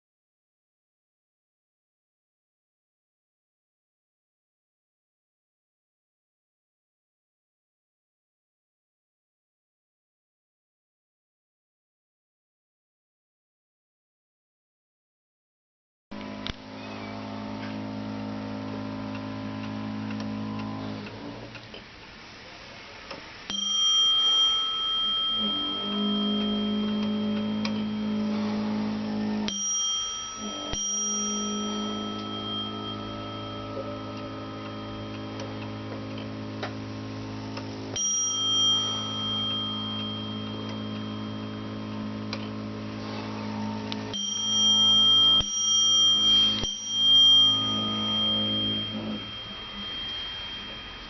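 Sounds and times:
clock bell striking: 23.5s - 51.0s.

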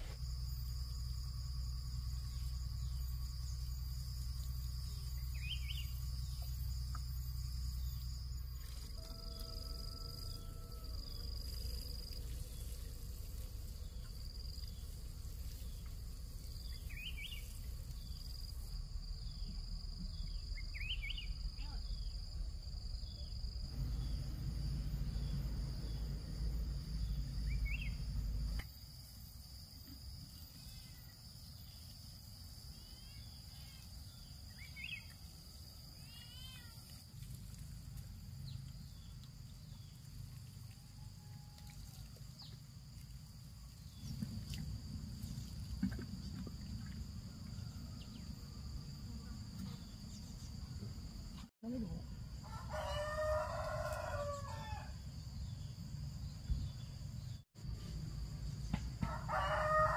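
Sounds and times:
high insect drone: 0.0s - 59.9s
bird chirps: 4.8s - 7.0s, 27.4s - 28.1s
low rumbling noise: 23.6s - 28.6s, 43.9s - 49.6s.

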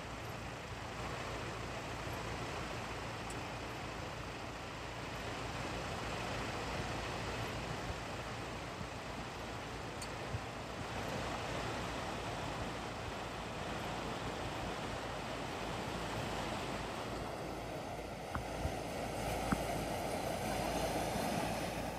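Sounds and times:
water surging around car: 0.0s - 21.9s
wind on microphone: 10.1s - 21.9s.

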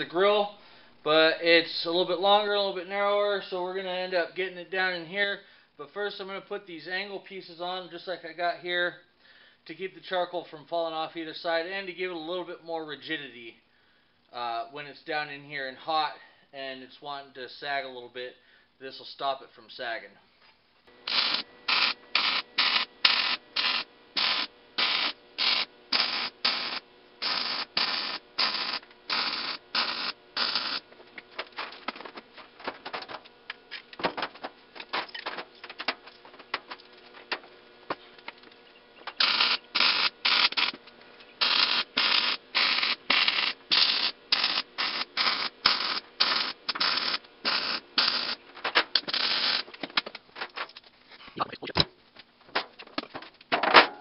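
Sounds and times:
welder arc bursts: 20.9s - 31.9s, 39.0s - 49.8s
handling noise: 30.9s - 39.2s.

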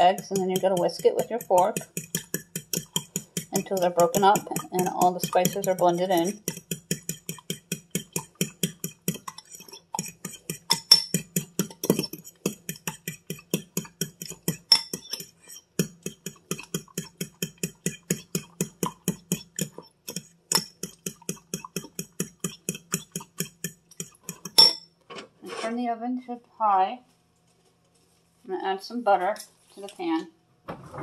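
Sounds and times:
fork whisking eggs in glass bowl: 0.0s - 24.8s.

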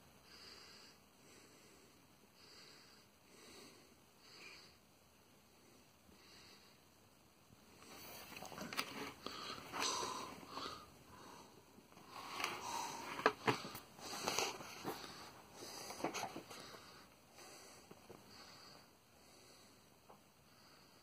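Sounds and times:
breathing and sniffing: 7.8s - 19.9s.

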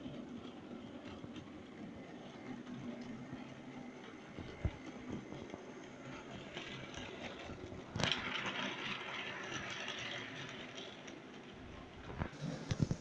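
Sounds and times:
model train wheels clattering: 3.9s - 13.0s.

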